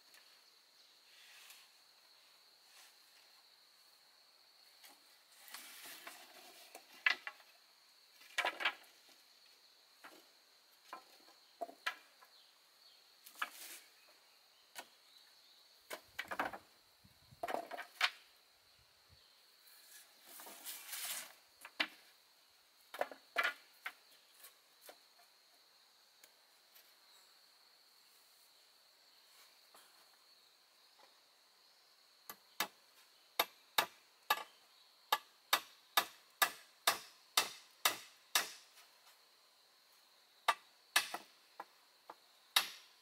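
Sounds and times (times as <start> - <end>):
insects chirring: 0.0 - 43.0
wooden pieces knocking and clattering: 6.0 - 7.5, 8.2 - 9.1, 15.9 - 16.7, 17.4 - 18.3, 22.9 - 24.0.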